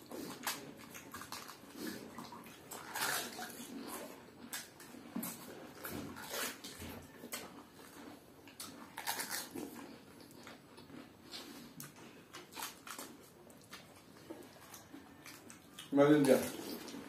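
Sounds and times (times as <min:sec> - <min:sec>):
crisp shells crunching: 0:08.9 - 0:09.6.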